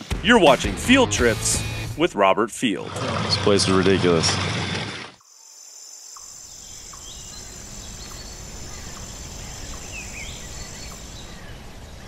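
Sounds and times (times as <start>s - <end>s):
bird chirps: 5.2s - 12.0s.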